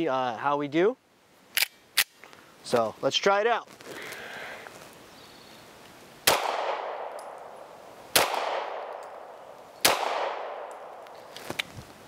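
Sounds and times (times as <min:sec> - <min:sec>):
pistol shots with echo: 0:06.2 - 0:11.1.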